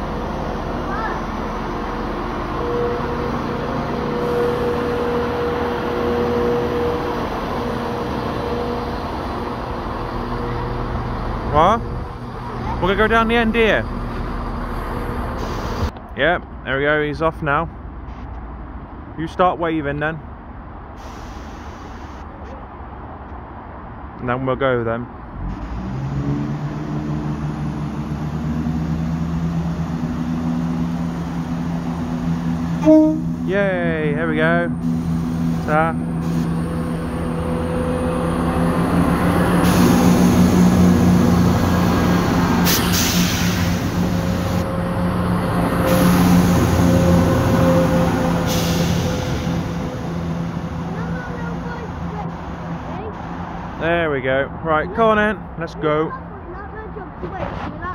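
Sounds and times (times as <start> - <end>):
diesel train engines idling: 0.0 - 15.9, 28.6 - 57.1.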